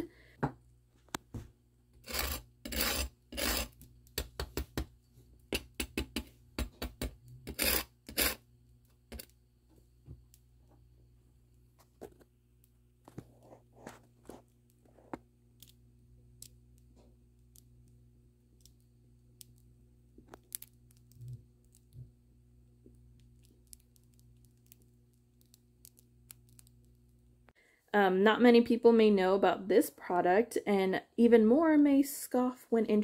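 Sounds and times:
low steady hum: 0.0s - 33.0s
bread crust crackling: 13.0s - 22.1s, 22.7s - 27.4s.

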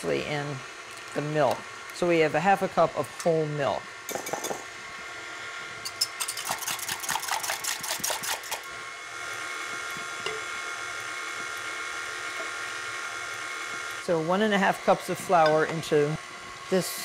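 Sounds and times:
stand mixer motor whine: 6.7s - 17.0s.

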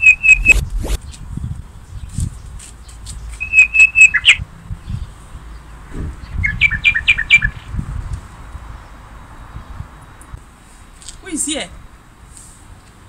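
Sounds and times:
songbird whistled chirps: 0.0s - 0.6s, 3.2s - 4.4s, 6.3s - 7.6s.

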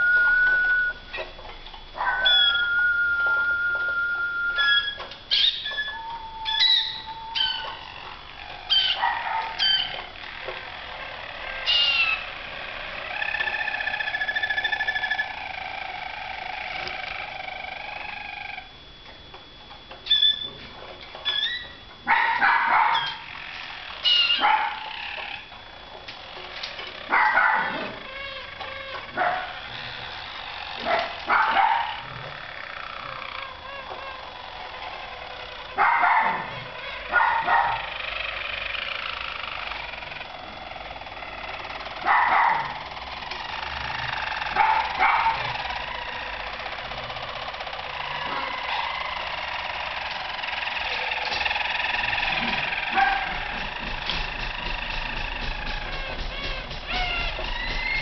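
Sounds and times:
small dog barking: 2.0s - 2.6s, 8.9s - 9.8s, 22.1s - 23.2s, 24.3s - 24.9s, 27.1s - 28.0s, 29.1s - 29.6s, 30.8s - 32.0s, 35.8s - 37.9s, 42.0s - 42.8s, 44.5s - 45.6s, 52.4s - 53.6s
canaries singing rolling trills: 2.0s - 18.7s, 20.0s - 20.6s, 21.2s - 25.5s, 40.9s - 58.0s.

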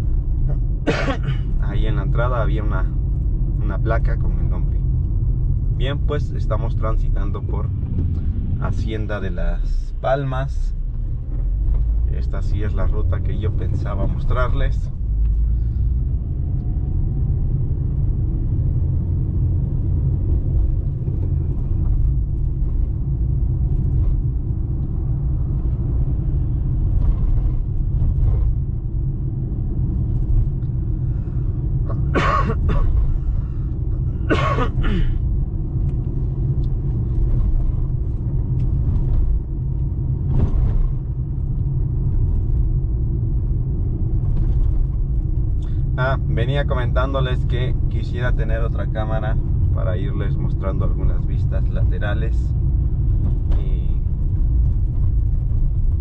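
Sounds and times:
car engine drone: 0.0s - 56.0s
tyres on the road: 0.0s - 56.0s.

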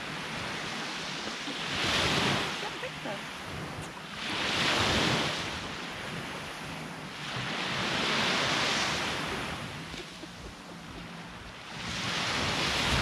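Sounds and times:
sea waves breaking on shore: 0.0s - 13.0s.

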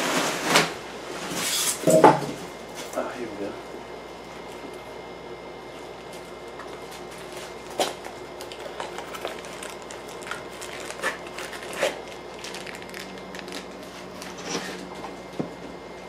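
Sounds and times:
steady low hum: 0.0s - 16.0s
plastic wrap crinkling: 5.8s - 14.8s.

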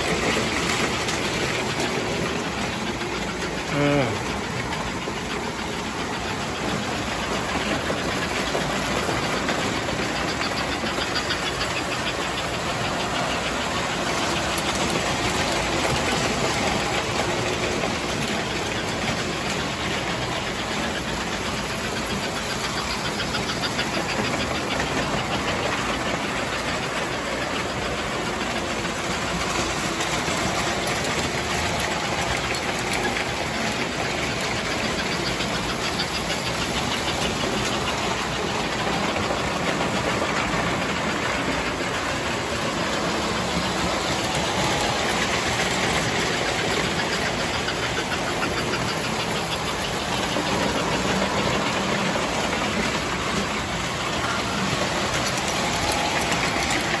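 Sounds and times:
model train motors whirring: 0.0s - 57.0s.

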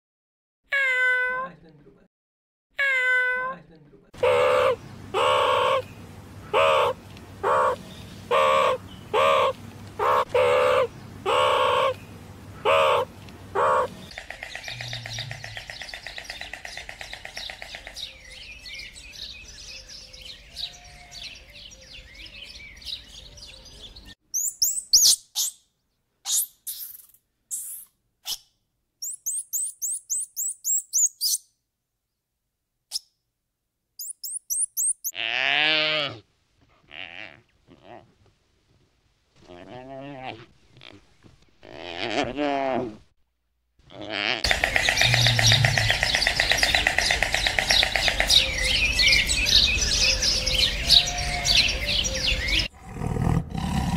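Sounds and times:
meerkat calls: 6.5s - 12.0s, 12.6s - 14.0s
squirrel monkey chirps: 24.4s - 25.6s, 26.2s - 31.5s, 34.0s - 35.2s.

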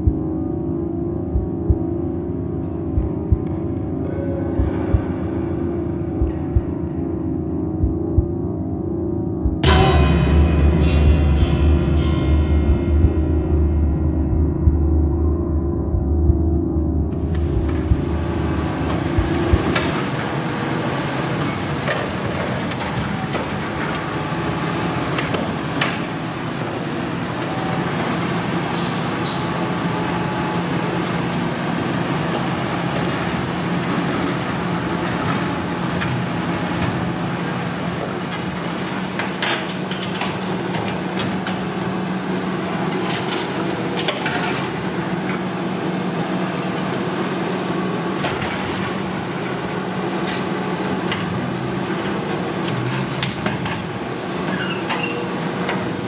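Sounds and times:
excavator running under load: 17.0s - 56.0s.

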